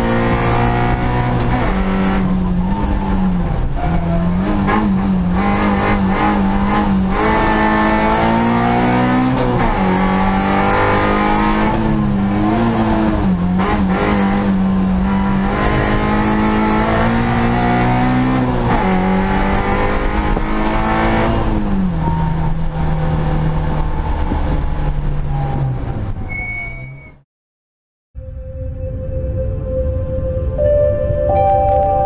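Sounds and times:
race car engine at high revs: 0:00.0 - 0:24.9.

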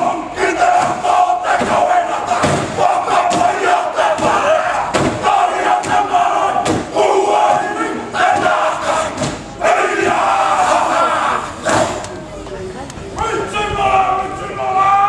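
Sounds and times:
group shouting and chanting: 0:00.0 - 0:12.1, 0:13.2 - 0:15.0
stamping and slapping beats: 0:02.4 - 0:06.9.

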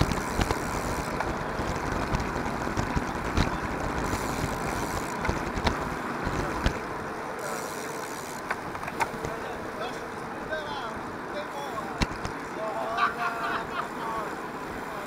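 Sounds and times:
small clicks and rattles: 0:00.0 - 0:10.0
tyre and road rumble: 0:00.0 - 0:15.0.

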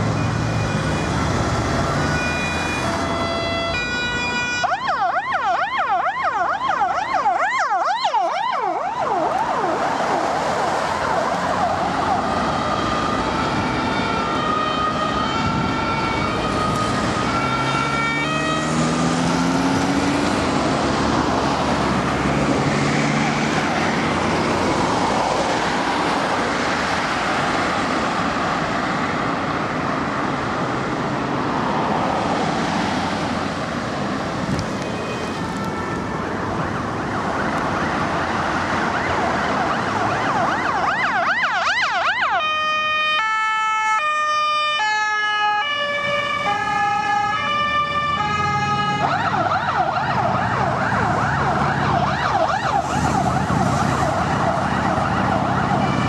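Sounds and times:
two-tone siren: 0:00.0 - 0:20.2, 0:34.8 - 0:56.0
passing vehicle engines and tyres: 0:00.0 - 0:56.0
fast warbling siren: 0:00.2 - 0:19.0, 0:36.6 - 0:56.0
engine rising in pitch: 0:08.5 - 0:26.0.

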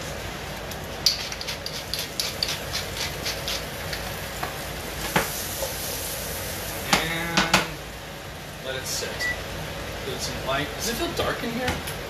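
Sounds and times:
zucchini sizzling in oil: 0:00.0 - 0:11.6.

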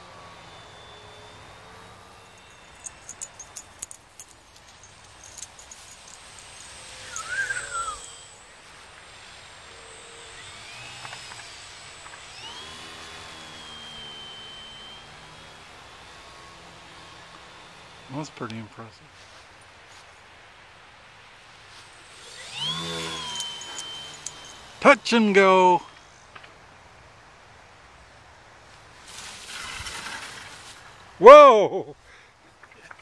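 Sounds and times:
model plane motor whining: 0:00.0 - 0:02.8, 0:09.6 - 0:18.1, 0:22.1 - 0:24.8.

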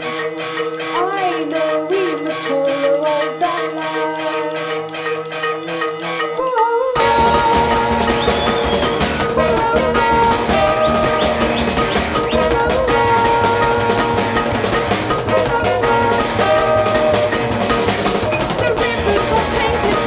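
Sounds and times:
trumpet: 0:00.0 - 0:20.0
trombone: 0:04.2 - 0:20.0
bass: 0:07.0 - 0:20.0
drums: 0:07.0 - 0:20.0.

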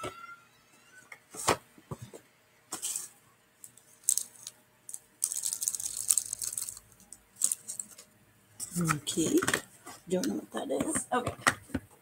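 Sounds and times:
plastic bag crinkling: 0:03.7 - 0:08.1.

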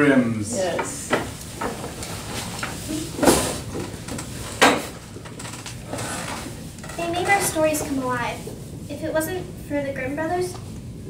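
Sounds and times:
low room noise: 0:00.0 - 0:11.0
chairs shifting: 0:00.6 - 0:08.3.

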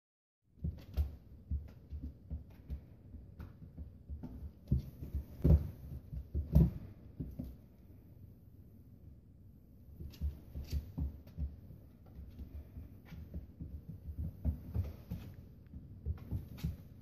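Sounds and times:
paws thudding on hardwood floor: 0:00.6 - 0:07.8, 0:10.0 - 0:17.0
claws clicking on hardwood floor: 0:10.0 - 0:17.0.

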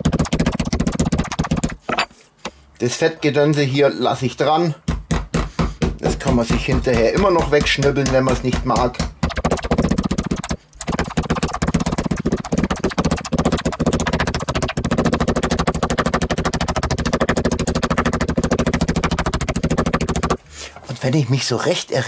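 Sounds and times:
mallet pounding meat on board: 0:00.0 - 0:01.8, 0:04.8 - 0:20.4.

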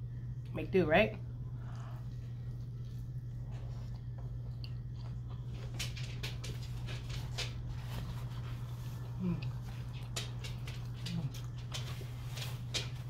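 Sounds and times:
steady low hum: 0:00.0 - 0:13.0
wet chewing and lip-smacking: 0:01.5 - 0:05.8.

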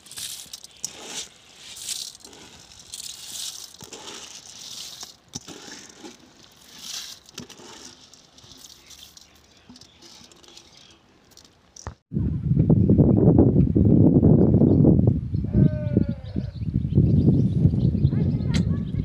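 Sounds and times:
rice grains pouring: 0:00.0 - 0:11.9.

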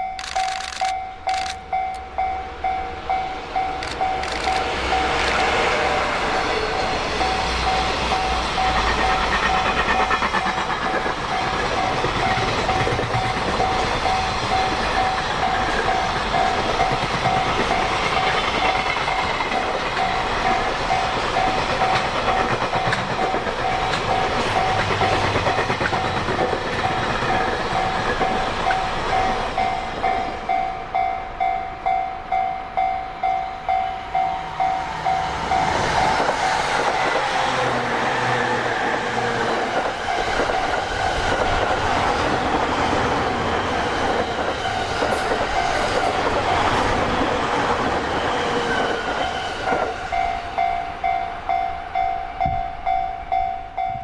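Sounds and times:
high ringing tone: 0:00.0 - 0:08.8, 0:27.8 - 0:36.1, 0:50.1 - 0:54.0
electric train motors whining: 0:00.0 - 0:30.6
freight wagons rolling on track: 0:03.8 - 0:05.6, 0:06.8 - 0:30.1.

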